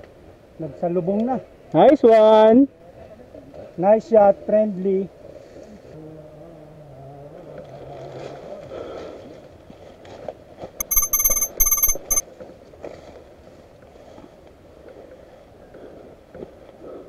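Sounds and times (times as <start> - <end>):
high-pitched electronic beeping: 10.8 - 12.2.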